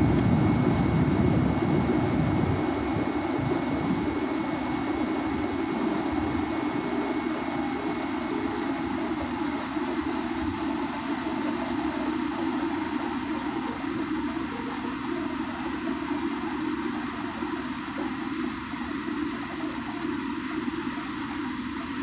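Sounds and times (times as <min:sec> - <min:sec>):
jet engines and rushing air: 0:00.0 - 0:11.0
faint high whine: 0:00.0 - 0:22.0.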